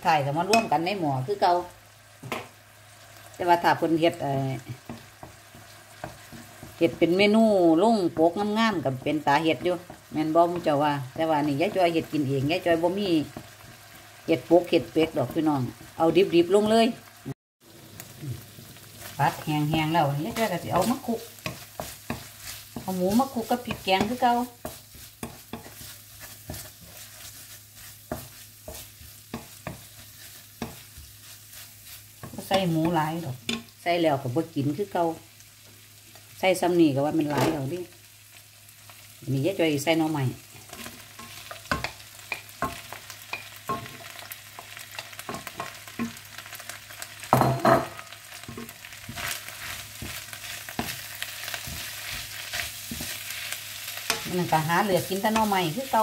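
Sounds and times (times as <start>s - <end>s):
food sizzling: 0.0s - 56.0s
spatula scraping a wok: 18.4s - 33.8s, 40.4s - 47.4s, 48.3s - 56.0s.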